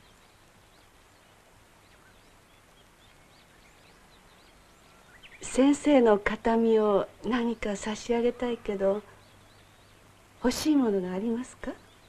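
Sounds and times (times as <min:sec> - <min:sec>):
faint bird chirps: 0:00.0 - 0:05.9
background hiss: 0:00.0 - 0:12.0.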